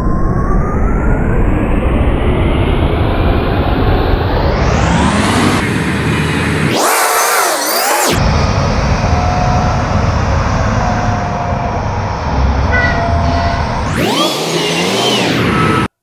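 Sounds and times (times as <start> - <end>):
diesel engines running: 1.6 - 15.9.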